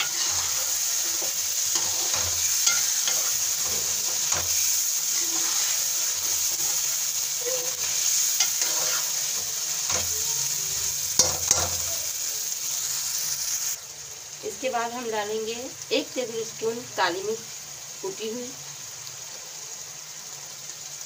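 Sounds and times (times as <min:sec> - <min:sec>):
metal ladle scraping pan: 0:00.0 - 0:07.0, 0:07.6 - 0:10.1
food sizzling in a pan: 0:00.0 - 0:21.0.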